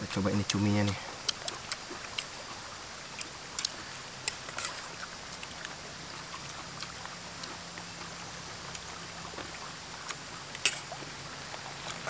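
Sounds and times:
river flowing: 0:00.0 - 0:12.0
people eating with hands: 0:00.3 - 0:08.0.

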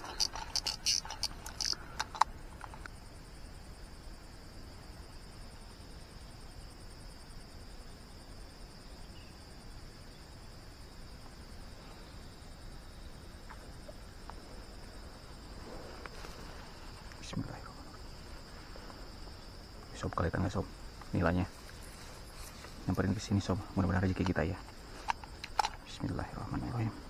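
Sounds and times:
faint ticks: 0:00.0 - 0:03.0, 0:13.4 - 0:15.0, 0:15.8 - 0:26.8
insects droning: 0:00.0 - 0:27.0.

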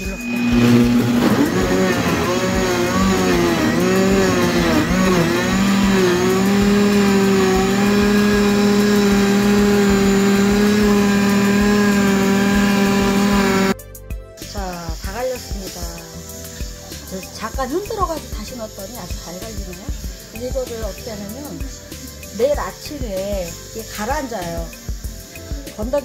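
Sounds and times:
blender grinding: 0:00.0 - 0:13.8.

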